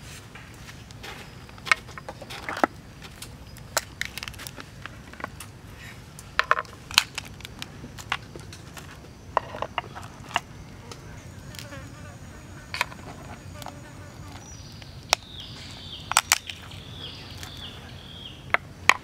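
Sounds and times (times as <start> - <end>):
crab shells cracking: 2.6 - 5.4, 6.6 - 8.2.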